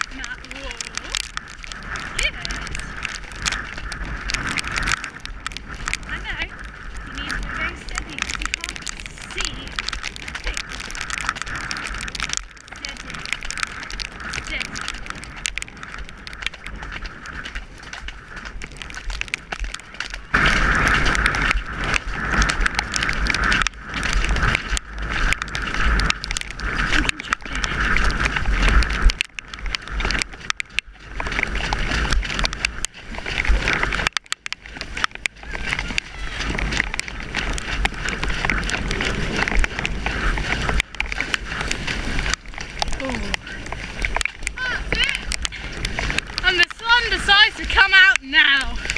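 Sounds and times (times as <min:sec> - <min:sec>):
hooves splashing through mud: 0:00.0 - 0:48.9
wind rushing over microphone: 0:00.0 - 0:48.9.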